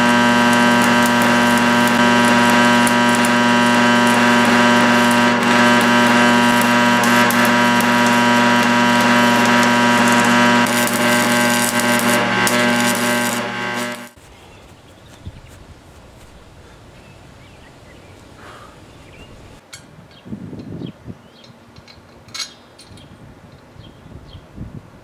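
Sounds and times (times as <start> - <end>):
steady electrical hum: 0.0 - 14.2
welding arc crackling: 0.0 - 14.2.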